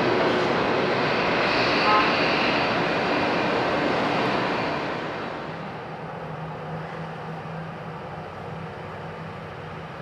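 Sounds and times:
jet engines roaring: 0.0s - 6.9s
low engine hum: 4.0s - 10.0s.

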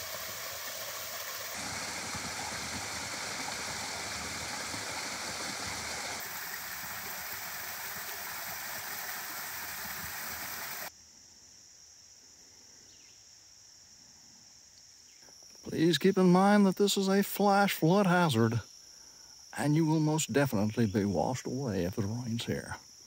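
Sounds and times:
waterfall splashing into pool: 0.0s - 10.9s
high insect drone: 0.0s - 23.0s.

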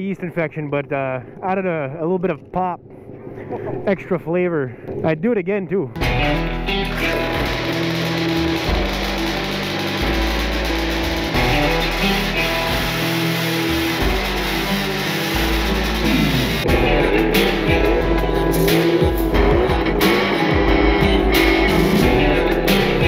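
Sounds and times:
rock music with guitar and bass: 6.0s - 23.0s.

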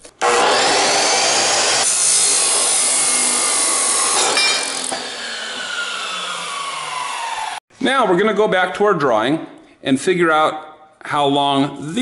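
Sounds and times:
chop saw cutting steel: 0.2s - 7.6s
saw blade spinning down: 0.3s - 7.6s.

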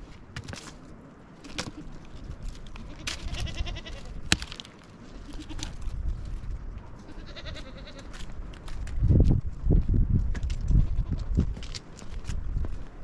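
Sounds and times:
dry branches crackling and scraping: 0.0s - 13.0s
goats bleating: 2.8s - 4.2s, 5.1s - 5.8s, 7.0s - 8.2s
branch snapping: 4.3s - 4.7s.

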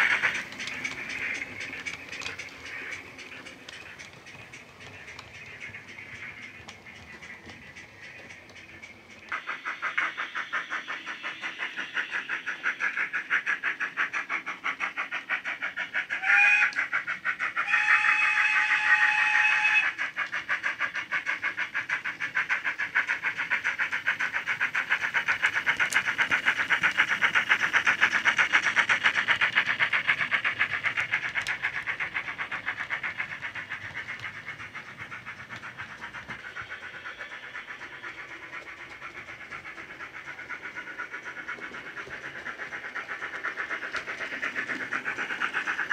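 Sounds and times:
steam locomotive exhaust chuffs: 0.0s - 45.9s
steam whistle blast: 16.2s - 16.7s, 17.6s - 19.8s.

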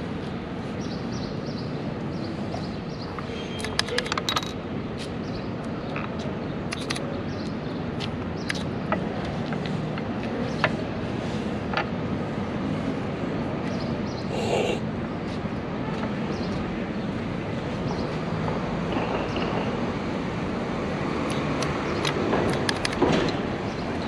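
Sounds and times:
traffic noise: 0.0s - 24.0s
chess pieces set down: 3.6s - 4.6s.

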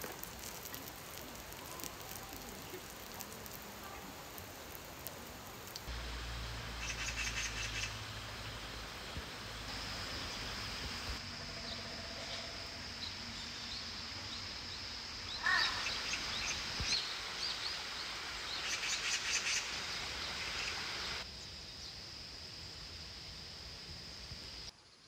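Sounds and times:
outdoor background hiss: 0.0s - 25.0s
faint high whine: 5.9s - 18.0s.

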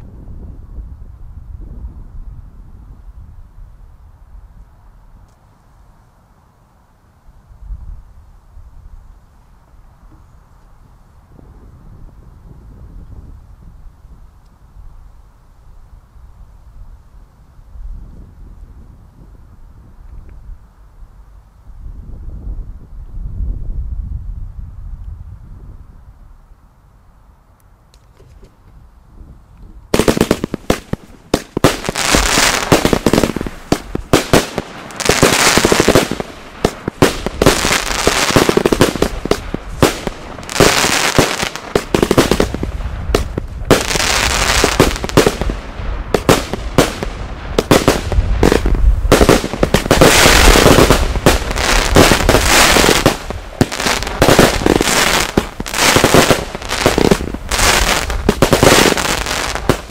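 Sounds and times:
fireworks bangs and crackling: 29.9s - 59.9s.

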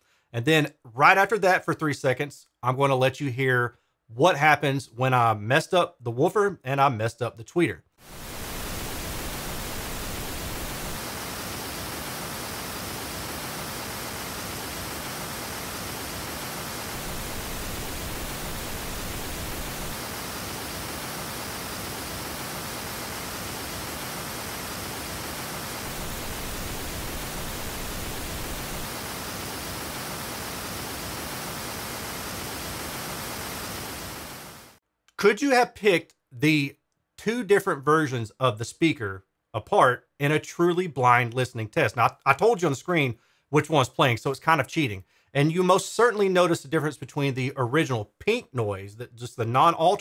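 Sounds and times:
pink noise test signal: 8.0s - 34.8s.

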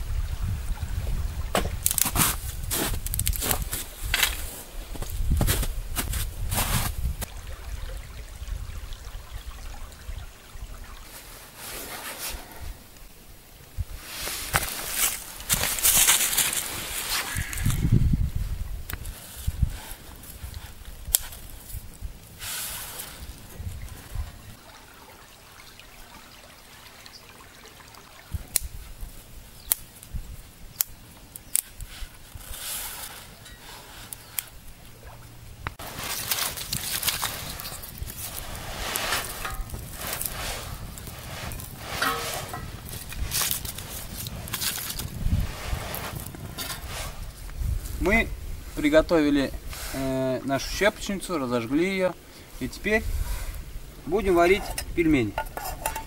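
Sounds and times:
dry twigs snapping: 1.8s - 4.5s, 29.6s - 30.2s, 30.8s - 31.9s, 35.6s - 45.2s
faint water trickling: 6.4s - 14.1s, 16.3s - 56.0s
river water flowing: 7.2s - 12.9s, 22.3s - 29.5s.

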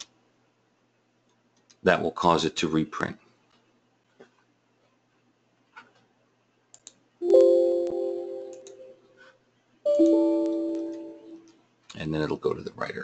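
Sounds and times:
faint mouse clicks: 6.7s - 7.0s
electronic chime chords: 7.2s - 9.0s, 9.9s - 11.4s.

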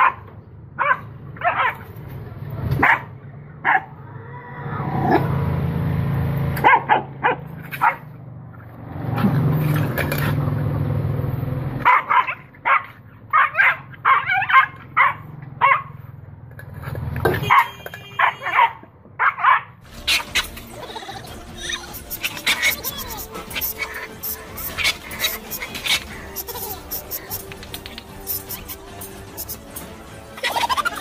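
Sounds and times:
puppy yapping: 0.8s - 1.8s, 2.8s - 4.0s, 11.8s - 15.9s, 17.4s - 28.8s.

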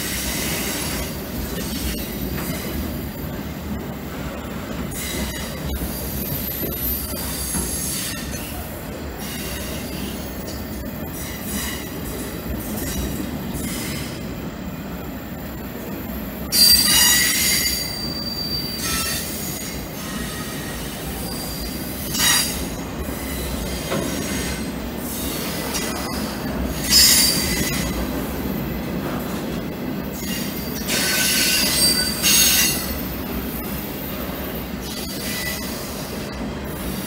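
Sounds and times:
train wheels squealing: 4.9s - 14.2s, 16.4s - 28.0s, 30.1s - 37.0s.

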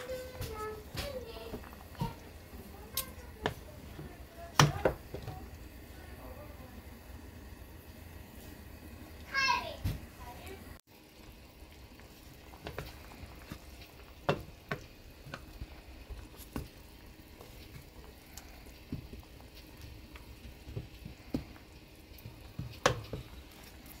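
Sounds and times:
spatula knocking on pot: 3.0s - 5.4s, 14.2s - 15.5s, 22.2s - 23.4s.

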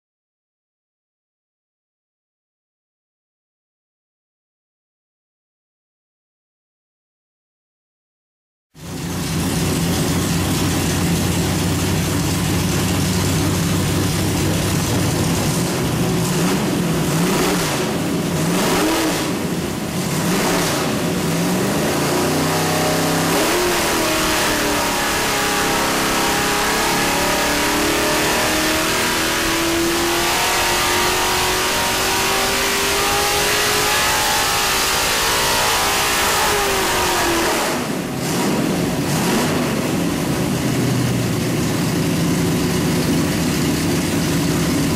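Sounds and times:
engine revving on dyno: 8.8s - 42.2s.

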